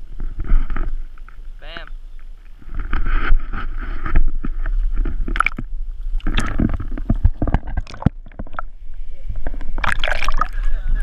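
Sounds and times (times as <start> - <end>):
wind rumbling on microphone: 0.0 - 11.0
water splashing and sloshing: 2.2 - 10.7.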